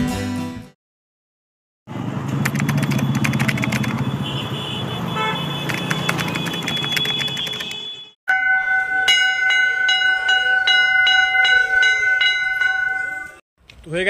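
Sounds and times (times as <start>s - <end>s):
vehicle engine and road noise: 1.9s - 8.1s.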